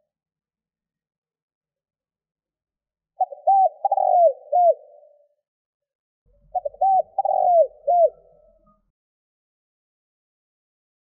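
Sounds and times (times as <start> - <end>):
dove cooing: 3.2 - 5.3, 6.3 - 8.8.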